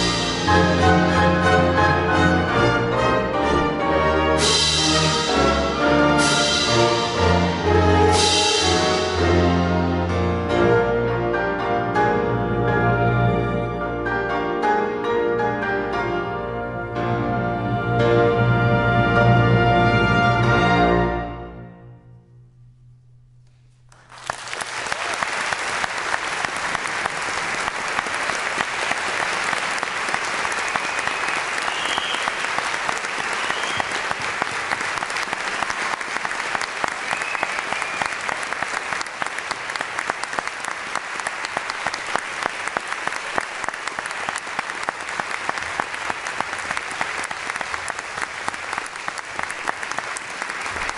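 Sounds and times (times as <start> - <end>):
audience applauding: 23.9 - 50.9.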